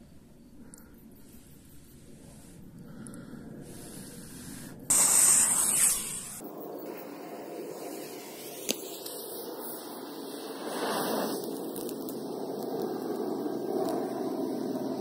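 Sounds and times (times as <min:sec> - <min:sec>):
firecracker fuse hissing: 0:03.7 - 0:15.0.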